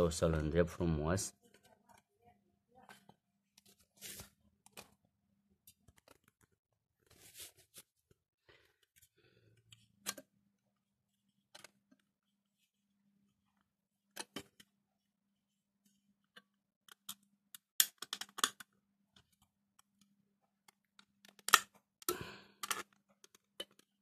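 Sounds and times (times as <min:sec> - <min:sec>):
soft rustle: 0:07.1 - 0:08.0
small tools clicking and knocking: 0:20.7 - 0:24.0.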